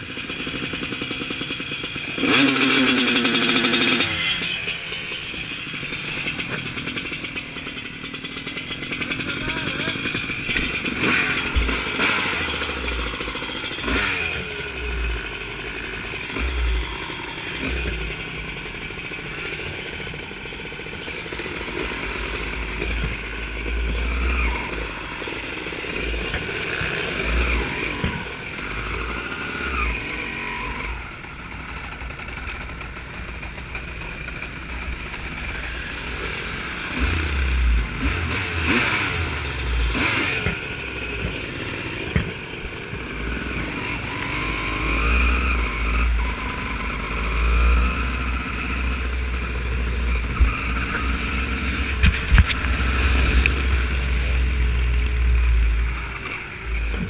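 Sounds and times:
motorcycle engine revving: 0.0 - 57.0
low rumbles: 45.6 - 57.0.

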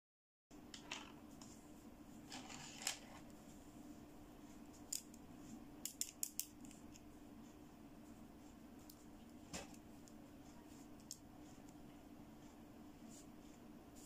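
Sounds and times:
faint low hum: 0.5 - 14.0
soft rustle: 12.4 - 14.0.

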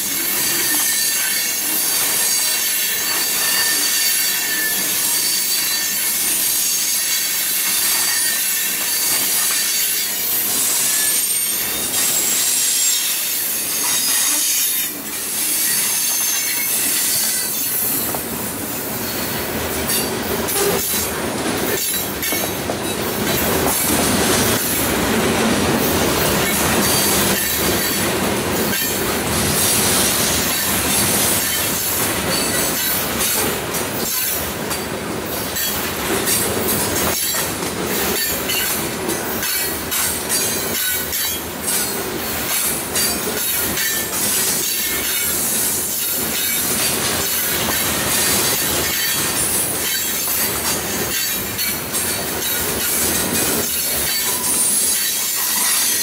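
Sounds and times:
train wheels rumbling on rail: 0.0 - 56.0
high wheel squeal: 0.1 - 21.1.

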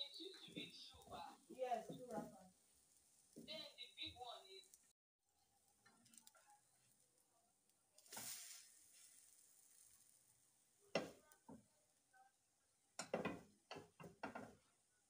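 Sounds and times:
pancake hissing in hot pan: 8.0 - 11.2
frying pan knocking on hob grate: 10.9 - 11.2, 13.0 - 14.6.

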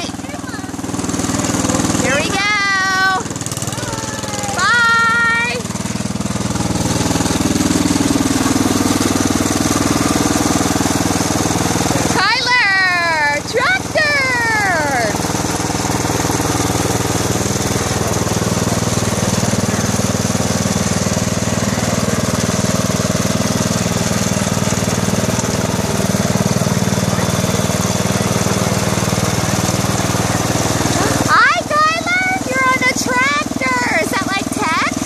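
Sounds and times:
garden tractor engine running: 0.0 - 35.0.

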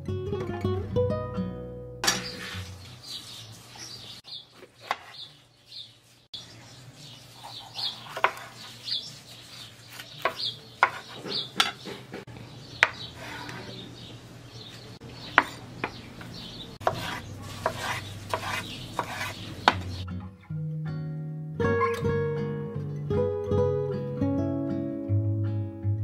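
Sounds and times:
dishes and utensils clinking: 2.0 - 2.8
small birds chirping: 2.2 - 20.1.

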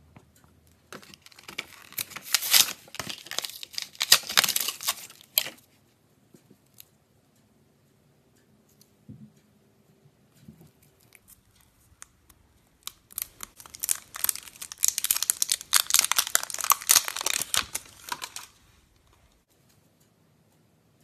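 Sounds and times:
plastic container crinkling: 0.9 - 5.6, 12.8 - 19.4.

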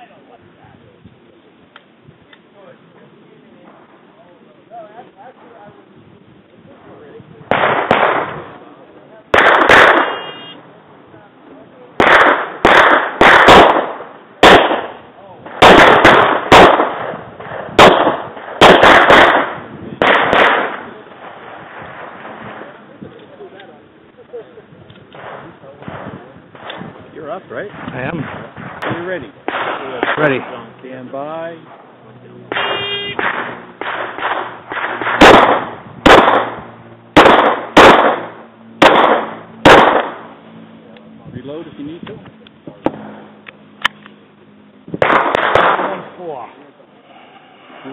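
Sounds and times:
quiet cracks: 1.1 - 2.5, 42.0 - 44.2
pistol shots with echo: 7.5 - 8.5, 9.3 - 10.4, 12.0 - 21.0, 27.7 - 30.6, 32.5 - 40.3, 45.0 - 46.2.

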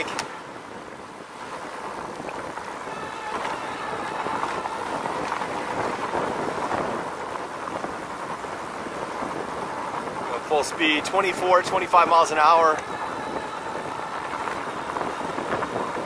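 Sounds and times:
bike tires rolling over dirt: 5.5 - 16.0.

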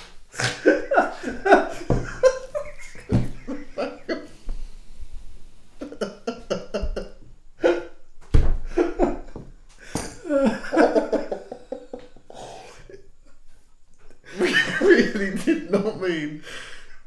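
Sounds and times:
men laughing: 0.4 - 4.5, 5.8 - 8.0, 8.7 - 13.0, 14.2 - 16.3
thump: 8.2 - 8.7.

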